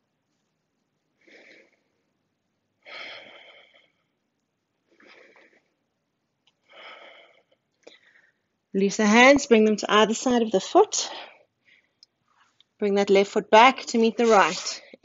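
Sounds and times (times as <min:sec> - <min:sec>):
woman breathing deliberately: 0:01.2 - 0:02.0, 0:02.8 - 0:04.2, 0:04.8 - 0:05.9, 0:06.6 - 0:08.6, 0:11.1 - 0:12.0.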